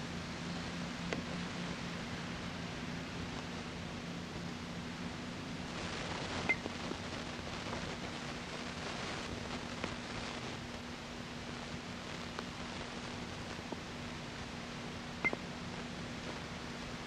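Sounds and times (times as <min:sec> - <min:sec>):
low hum: 0:00.0 - 0:17.0
steady hiss: 0:00.0 - 0:17.0.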